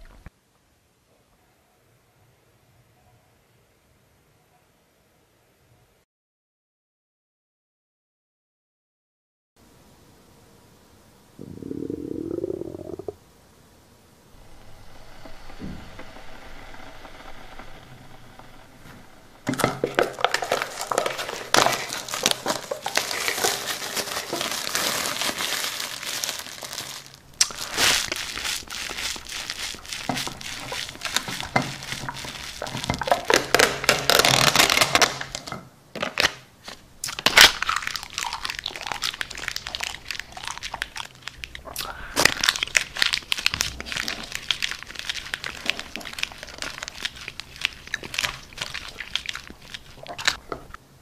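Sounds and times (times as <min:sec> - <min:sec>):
plastic wrap crinkling: 0:17.5 - 0:50.4.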